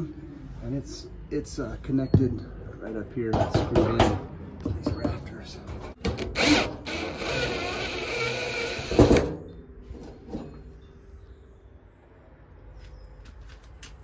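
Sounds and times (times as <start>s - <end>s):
cordless drill driving screw: 6.2s - 9.0s.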